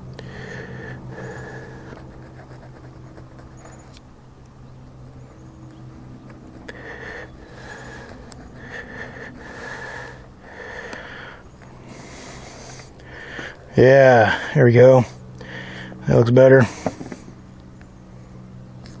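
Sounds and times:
knife sawing fruit rind: 0:00.7 - 0:03.8.

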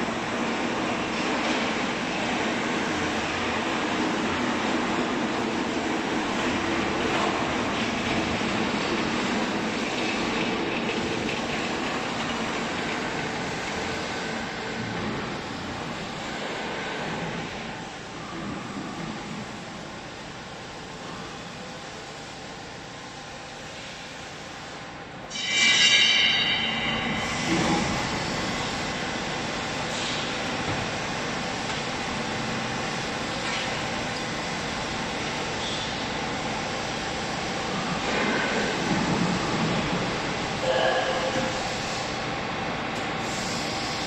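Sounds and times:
factory machinery running: 0:00.0 - 0:44.0
baler metallic screech: 0:25.3 - 0:27.5.

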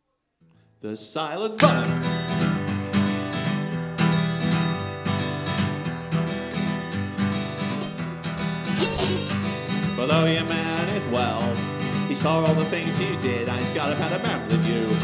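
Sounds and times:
acoustic guitar strumming: 0:01.8 - 0:15.0.

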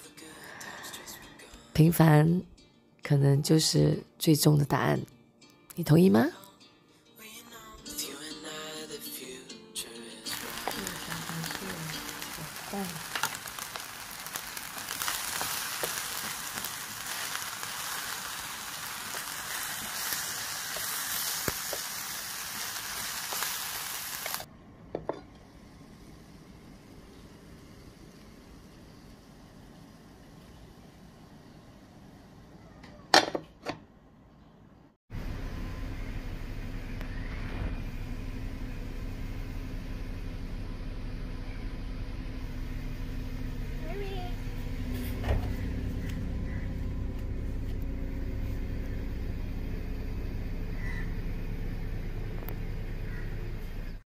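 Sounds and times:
faint hiss: 0:10.3 - 0:24.5
fried rice sizzling: 0:10.3 - 0:24.5, 0:45.6 - 0:53.3
engine idling: 0:35.2 - 0:54.0.

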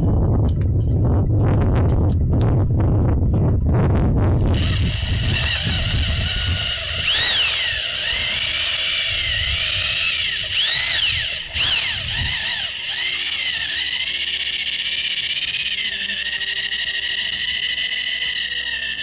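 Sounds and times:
drill whining: 0:04.5 - 0:19.0.

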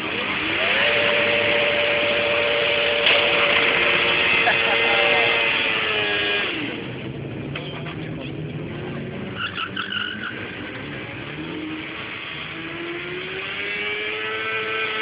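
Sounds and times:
distant motorcycle engine: 0:00.0 - 0:15.0
high-pitched squeal: 0:09.3 - 0:10.6.

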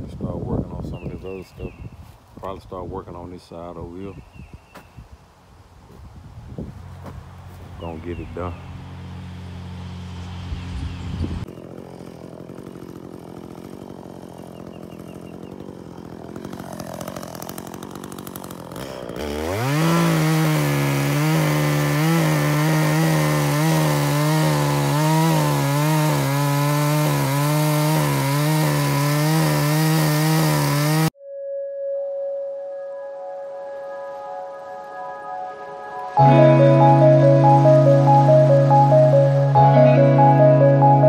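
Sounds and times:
chainsaw cutting log: 0:11.4 - 0:31.2.

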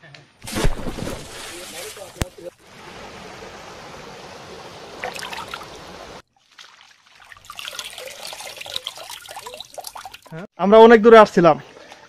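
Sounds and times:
water trickling over rock: 0:05.0 - 0:10.4.

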